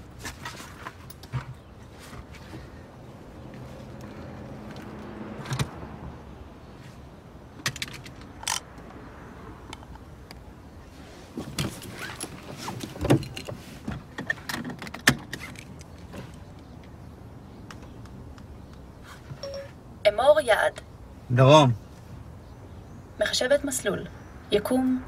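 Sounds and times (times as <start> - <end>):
clicks and rustling: 7.6 - 9.0.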